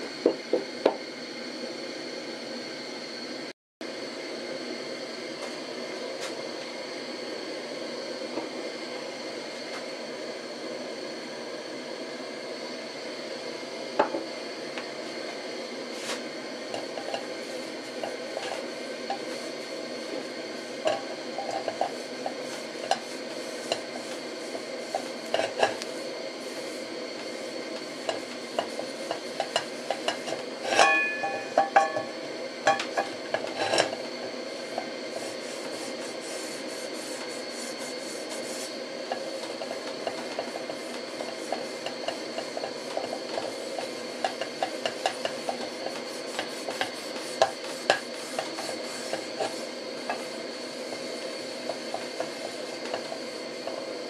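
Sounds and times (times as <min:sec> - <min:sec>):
steady hiss: 0:00.0 - 0:54.0
pan knocking on burner: 0:28.1 - 0:34.0, 0:39.1 - 0:50.3.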